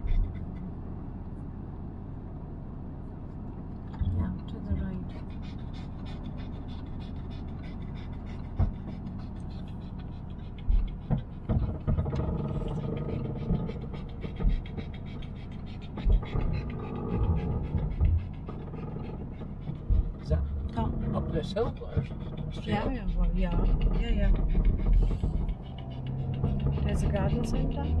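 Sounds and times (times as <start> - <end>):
car engine and tyre rumble: 0.0 - 28.0
low thumps: 15.8 - 28.0.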